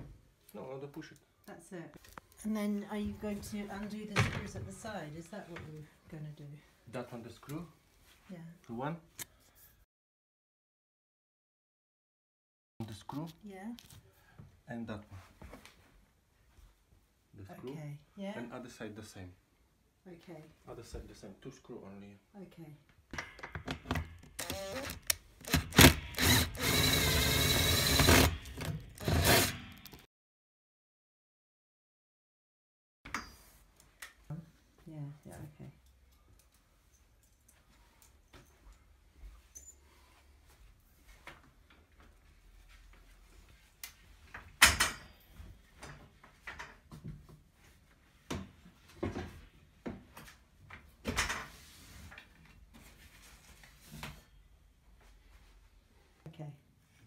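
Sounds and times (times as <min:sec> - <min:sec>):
drill motor whining: 0:24.4 - 0:29.8.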